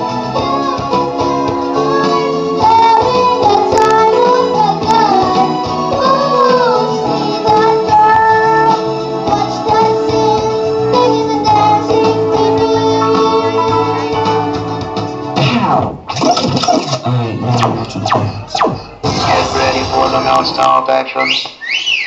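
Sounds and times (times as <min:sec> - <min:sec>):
backing music: 0:00.0 - 0:21.2
girl singing into a microphone: 0:00.4 - 0:14.8.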